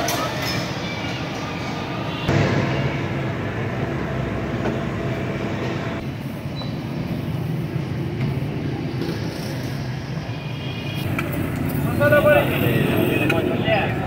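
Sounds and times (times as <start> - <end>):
low hum: 2.3 - 6.1
low mechanical rumble: 2.3 - 6.2.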